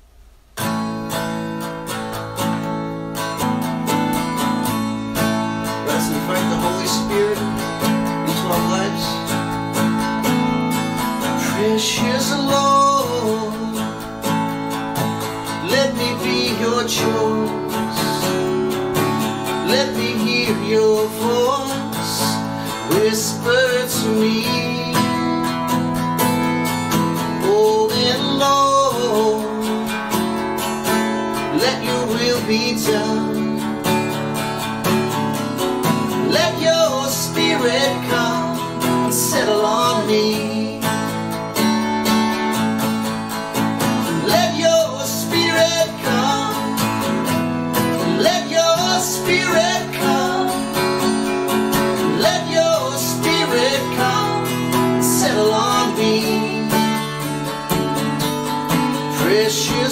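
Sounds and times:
acoustic guitar strumming: 0:00.0 - 0:59.9
man singing: 0:04.4 - 0:14.4, 0:15.2 - 0:26.0, 0:27.1 - 0:30.4, 0:31.3 - 0:34.1, 0:36.0 - 0:41.7, 0:43.8 - 0:57.6, 0:58.8 - 0:59.9.

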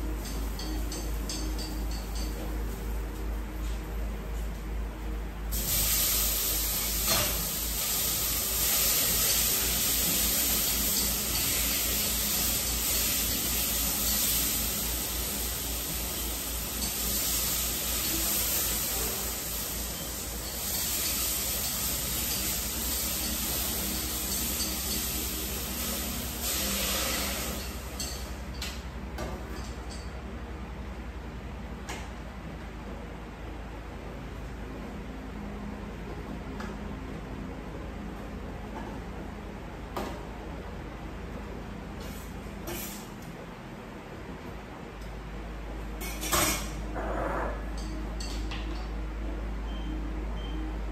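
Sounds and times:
food sizzling in a pan: 0:05.5 - 0:28.4.

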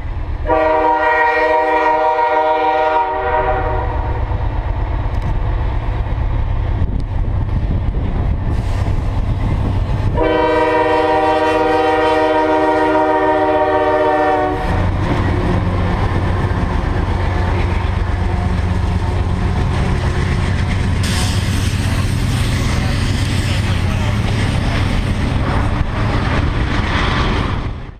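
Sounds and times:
train wheels rumbling on rail: 0:00.0 - 0:27.9
train air horn chord: 0:00.4 - 0:04.2, 0:10.2 - 0:14.8
locomotives rumbling: 0:03.7 - 0:27.9.

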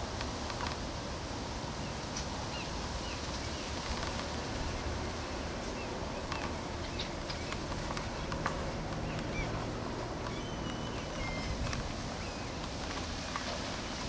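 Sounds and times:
outdoor background noise: 0:00.0 - 0:14.0
faint bird chirps: 0:10.2 - 0:12.6.

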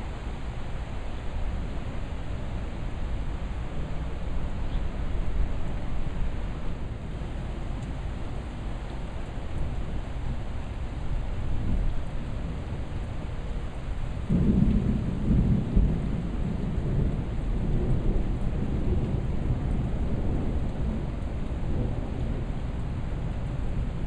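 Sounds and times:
thunder rumbling: 0:14.1 - 0:24.0.

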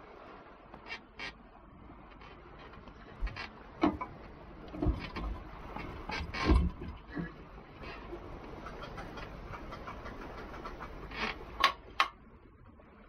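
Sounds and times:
anchor gear clunks and knocks: 0:02.7 - 0:07.0.

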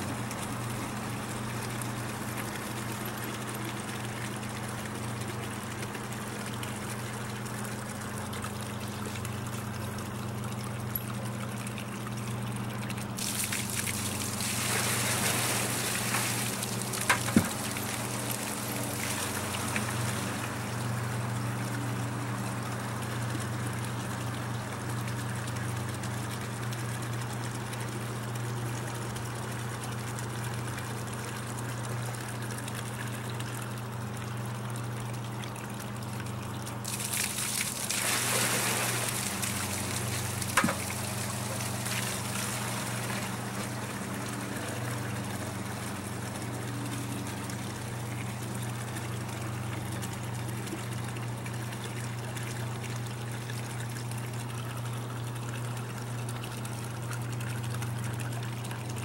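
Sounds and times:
pump humming: 0:00.0 - 0:59.0
water pouring into plastic bucket: 0:12.9 - 0:20.5, 0:36.8 - 0:45.4.

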